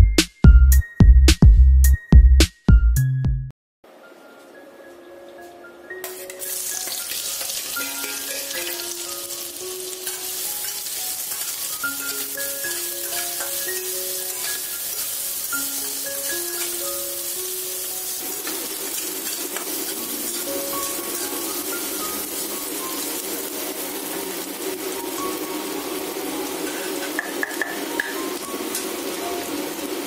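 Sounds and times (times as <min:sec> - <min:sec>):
light plucked background music: 0:00.0 - 0:30.0
onions sizzling in hot oil: 0:06.1 - 0:30.0.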